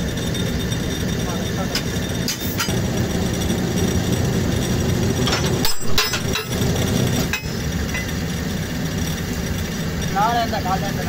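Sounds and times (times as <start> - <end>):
sharp metal clanks: 0.0 - 8.3
engine running: 0.0 - 11.0.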